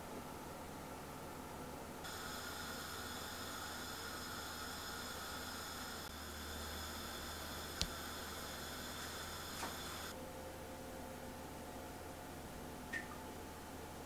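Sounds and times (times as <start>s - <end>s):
low electrical hum: 0.0s - 14.0s
background hiss: 2.0s - 10.1s
faint high whine: 2.0s - 10.5s.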